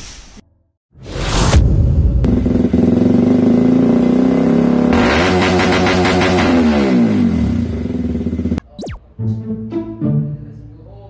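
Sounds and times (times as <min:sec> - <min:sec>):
motorcycle engine high revs: 0:02.2 - 0:08.6.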